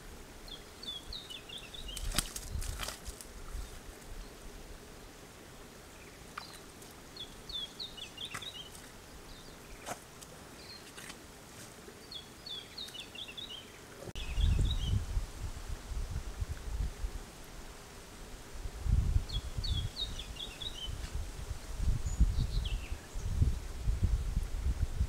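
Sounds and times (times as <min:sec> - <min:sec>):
small birds twittering: 0:00.4 - 0:11.1, 0:11.9 - 0:15.0, 0:19.2 - 0:21.0, 0:22.0 - 0:23.7.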